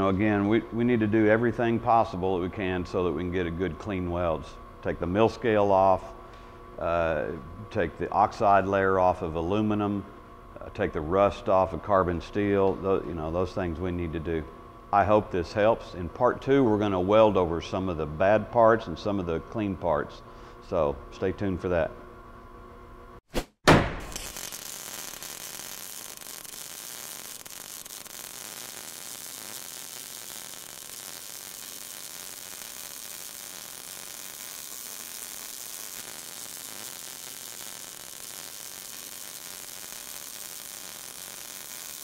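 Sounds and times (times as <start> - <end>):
sharp cracks: 23.4 - 42.0
welding arc sizzling: 24.0 - 42.0.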